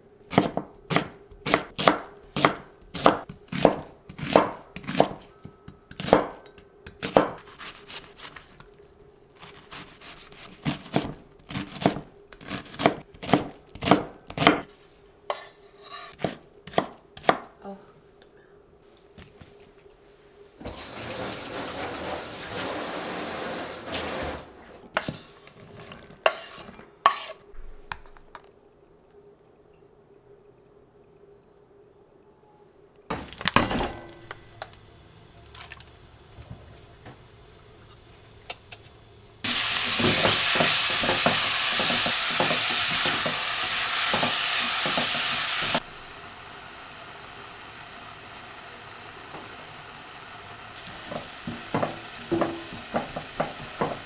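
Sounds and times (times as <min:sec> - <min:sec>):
knife chopping on wooden board: 0:00.3 - 0:05.2.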